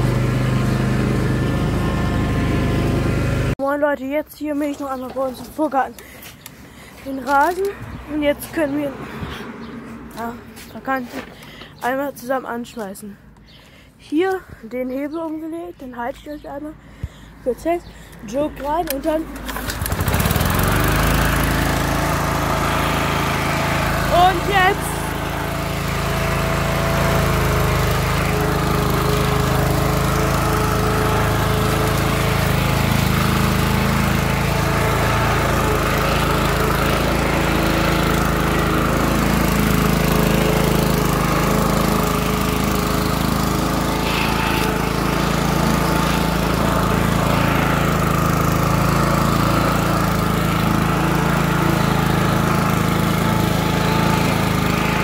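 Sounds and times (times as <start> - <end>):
lawn mower engine running: 0.0 - 3.8, 4.6 - 12.1, 16.8 - 55.0.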